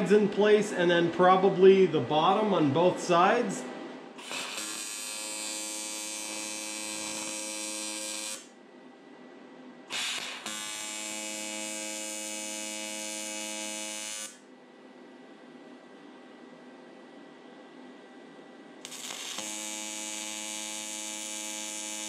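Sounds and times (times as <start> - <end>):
welding arc buzzing: 4.2 - 8.5, 9.9 - 14.4, 18.8 - 22.0.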